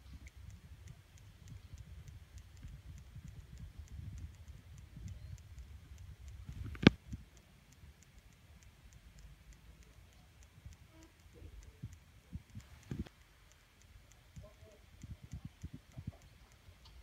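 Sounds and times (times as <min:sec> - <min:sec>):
sharp click: 0:00.0 - 0:07.2
faint high ticking: 0:00.0 - 0:17.0.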